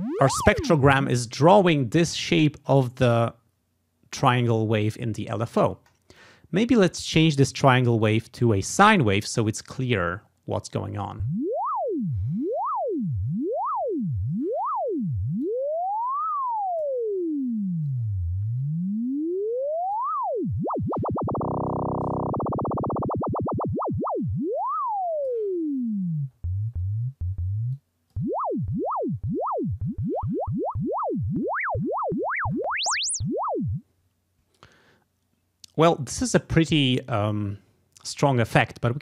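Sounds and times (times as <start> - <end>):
sweeping sine tone: 0.0 - 1.1, 11.2 - 33.8.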